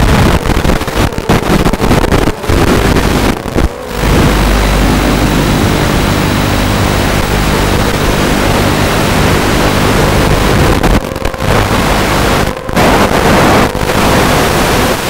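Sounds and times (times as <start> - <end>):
static hiss: 0.0 - 15.0
faint low hum: 2.5 - 14.5.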